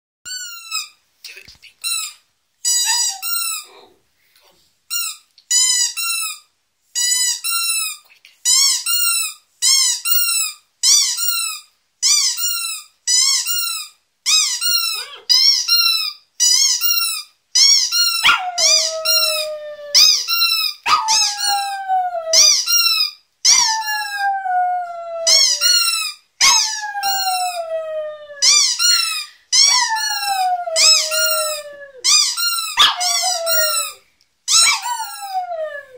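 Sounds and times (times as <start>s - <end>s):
rubber squeaky toy squeaking: 0.3s - 1.0s, 1.8s - 3.8s, 4.9s - 21.8s, 22.4s - 24.2s, 25.3s - 27.6s, 28.4s - 35.5s
dog howling: 18.2s - 20.3s, 20.9s - 22.5s, 23.5s - 28.7s, 29.7s - 32.2s, 32.8s - 35.9s.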